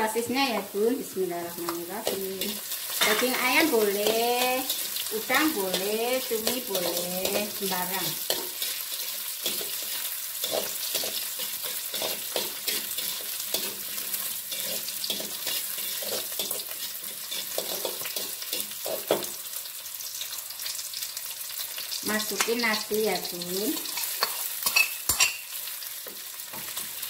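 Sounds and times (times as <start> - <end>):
sausage and onion sizzling in wok: 0.0 - 27.0
metal spatula scraping wok: 1.5 - 19.3, 23.7 - 25.6.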